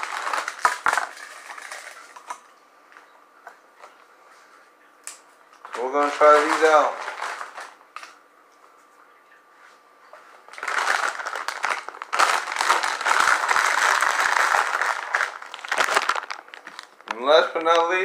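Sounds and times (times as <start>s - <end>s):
chip bag crinkling: 0.0s - 2.4s, 5.7s - 7.8s, 10.5s - 18.0s.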